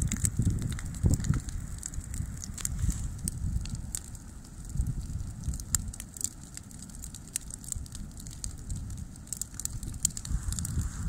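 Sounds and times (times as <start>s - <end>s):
bonfire burning: 0.0s - 11.0s
twigs crackling and popping: 0.0s - 11.0s.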